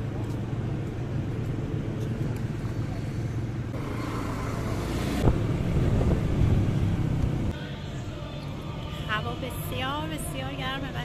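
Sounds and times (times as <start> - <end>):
motorcycle engine and road rumble: 0.0 - 7.6.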